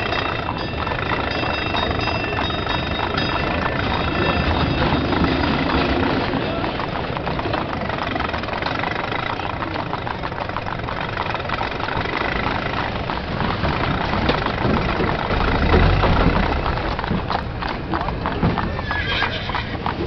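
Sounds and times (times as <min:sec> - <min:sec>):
old car engines chugging: 0:00.0 - 0:20.0
car passing with low rumble: 0:02.8 - 0:18.8.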